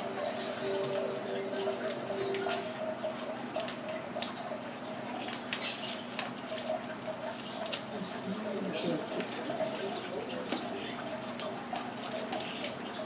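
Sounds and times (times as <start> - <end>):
faint steady hum: 0.0 - 13.0
paper rustling and crinkling: 5.1 - 10.7, 11.4 - 12.8.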